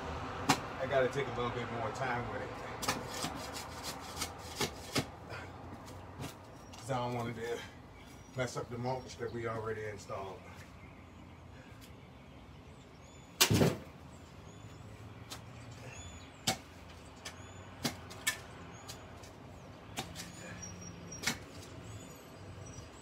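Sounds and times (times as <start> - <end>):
digging tool chopping into soil: 16.4 - 16.7, 17.8 - 19.0, 21.1 - 21.6.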